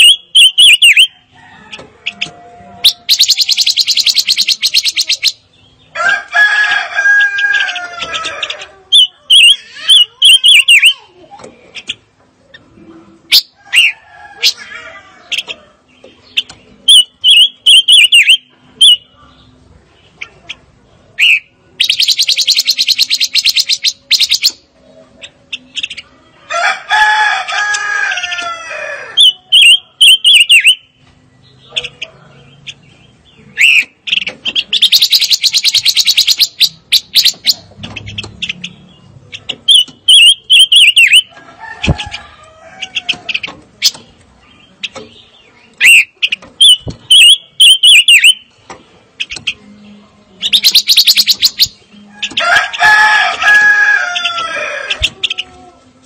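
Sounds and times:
bird song with buzzy trills: 0.0 - 56.0
bird call with falling tone: 45.8 - 48.6.

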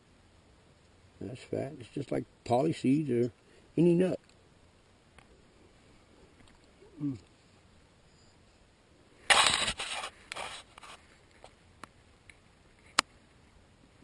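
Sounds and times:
short low voice sound: 6.9 - 7.3
scraping and rustling of branches: 9.2 - 11.6.

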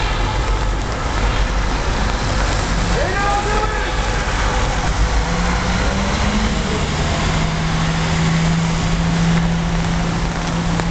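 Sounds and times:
low engine hum: 0.0 - 10.9
road traffic: 0.0 - 10.9.

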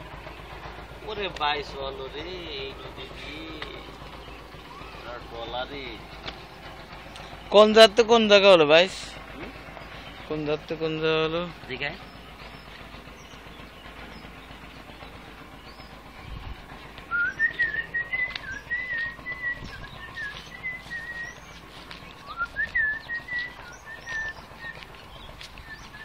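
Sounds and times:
faint bird chirps: 4.2 - 5.2
person whistling a tune: 17.1 - 21.2, 22.3 - 24.8.

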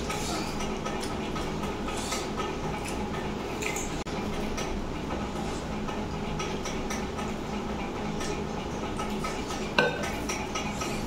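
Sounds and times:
steel bowl and plate clinking: 9.2 - 11.0.

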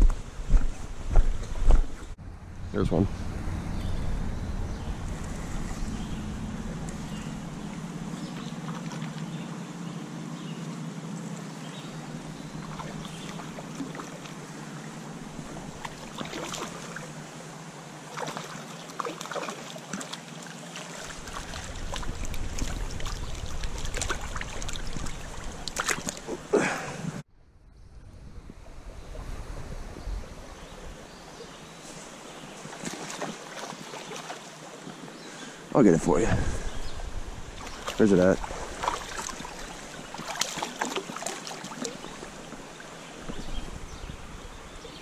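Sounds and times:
wind rumble on microphone: 0.0 - 9.6, 21.0 - 26.1, 27.4 - 32.8, 36.0 - 40.2, 42.2 - 45.0
creek water flowing: 0.1 - 27.2, 29.0 - 45.0.

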